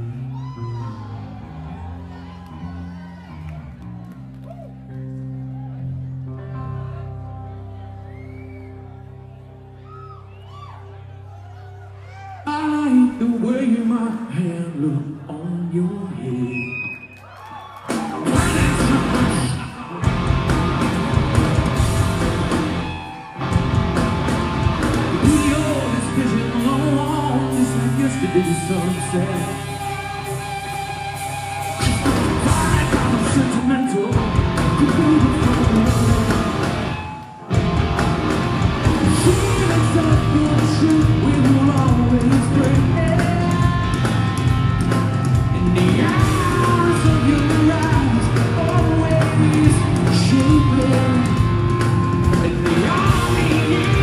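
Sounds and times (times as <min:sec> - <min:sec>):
man singing: 0:12.4 - 0:16.7, 0:18.2 - 0:20.2, 0:25.1 - 0:29.8, 0:31.8 - 0:37.0, 0:38.8 - 0:44.3, 0:45.3 - 0:54.0
live rock band: 0:17.8 - 0:54.0.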